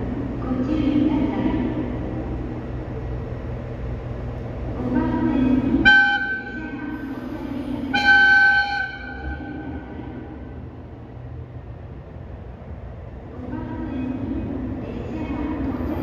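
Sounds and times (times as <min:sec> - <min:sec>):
diesel train rumbling: 0:00.0 - 0:16.0
train horn blasts: 0:05.8 - 0:06.7, 0:07.9 - 0:10.2.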